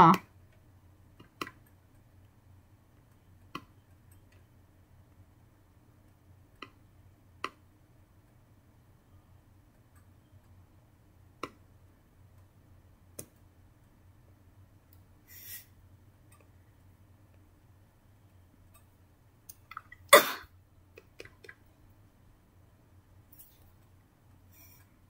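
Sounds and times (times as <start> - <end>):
low steady hum: 0.0 - 25.0
short hissing rustle: 15.2 - 15.8.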